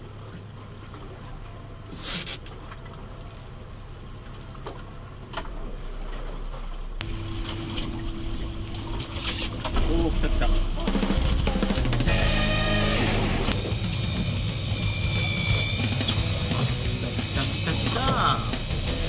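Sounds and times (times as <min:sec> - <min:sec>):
water sloshing against hull: 0:00.0 - 0:17.6
boat engine idling: 0:00.0 - 0:19.0
steady higher tone: 0:07.0 - 0:19.0.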